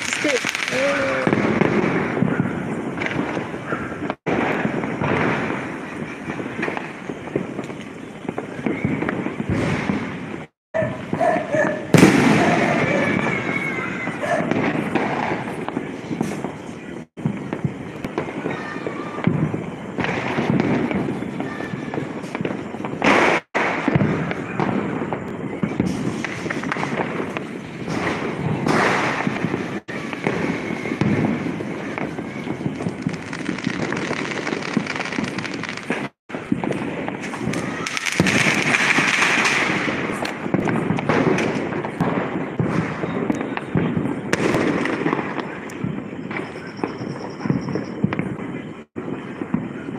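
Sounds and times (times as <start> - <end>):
firecrackers banging and popping: 0.0 - 49.9
loud rushing firework burst: 11.8 - 49.9.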